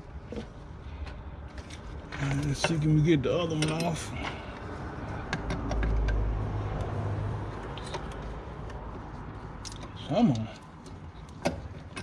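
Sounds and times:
passing vehicle rumble: 4.1 - 10.4.

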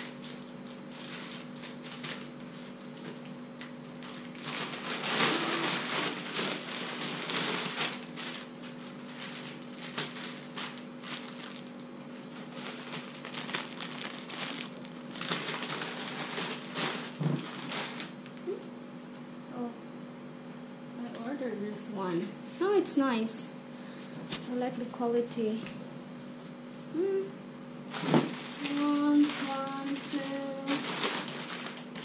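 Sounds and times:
plastic packaging crinkling: 0.0 - 18.6, 27.9 - 32.0.

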